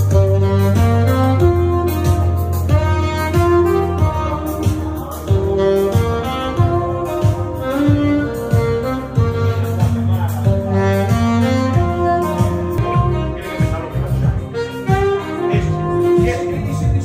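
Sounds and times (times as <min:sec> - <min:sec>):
backing track with beat and bass: 0:00.0 - 0:17.0
saxophone melody: 0:00.0 - 0:17.0.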